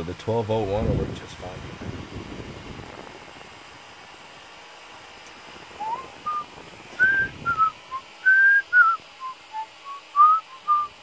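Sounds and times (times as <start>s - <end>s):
whistled melody from laptop: 5.8s - 6.4s, 7.0s - 10.9s.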